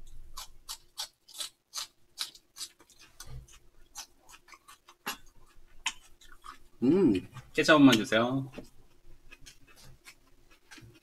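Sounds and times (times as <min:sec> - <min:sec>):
eating clicks and smacks: 0:07.3 - 0:11.0.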